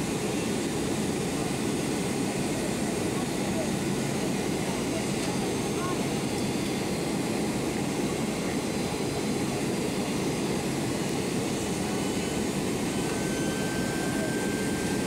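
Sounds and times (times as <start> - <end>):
jet engine roar in cabin: 0.0 - 15.0
faint thin whine: 12.2 - 15.0.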